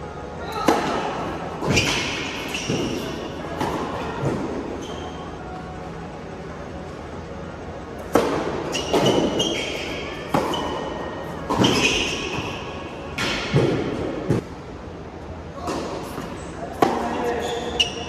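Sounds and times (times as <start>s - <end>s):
shoe squeaks: 1.6s - 3.4s, 4.7s - 5.5s, 8.6s - 12.9s, 17.1s - 18.0s
tennis ball bouncing: 10.3s - 10.8s.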